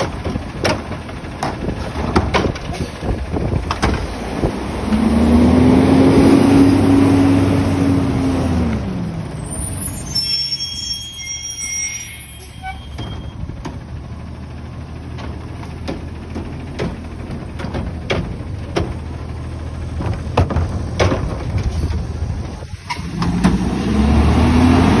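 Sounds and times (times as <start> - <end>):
knocks and bangs from trash cart: 0.0 - 2.8, 19.9 - 21.7
garbage truck engine running: 0.0 - 10.0, 11.9 - 23.8
engine revving: 3.9 - 9.1, 22.9 - 25.0.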